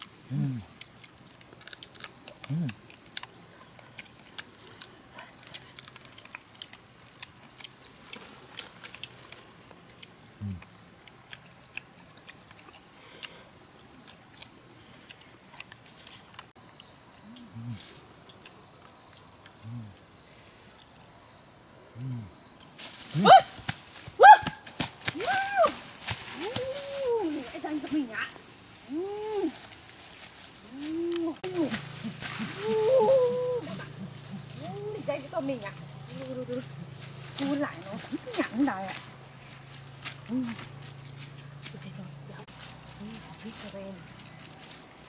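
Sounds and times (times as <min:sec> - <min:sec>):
small crackles and clicks: 0:04.0 - 0:12.8
high rising-and-falling calls: 0:30.7 - 0:34.8.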